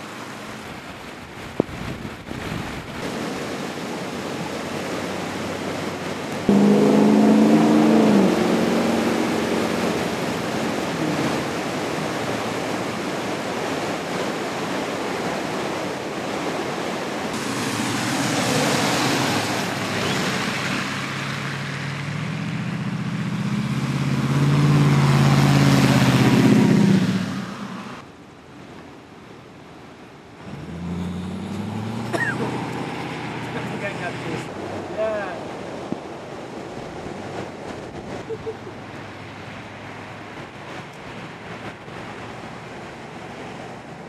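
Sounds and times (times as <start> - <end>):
river rushing under a bridge: 0.0 - 44.0
vehicle engine humming: 4.6 - 13.0, 17.3 - 28.0, 30.4 - 34.9.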